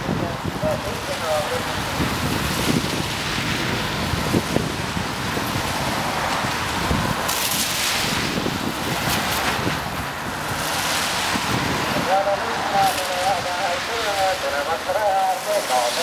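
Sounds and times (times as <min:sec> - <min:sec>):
wind rumble on microphone: 0:00.0 - 0:16.0
car tyres hissing on wet road: 0:00.1 - 0:16.0.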